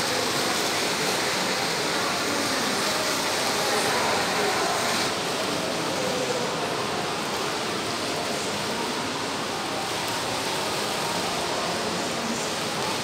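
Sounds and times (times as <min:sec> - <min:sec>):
shopping mall background noise: 0:00.0 - 0:13.0.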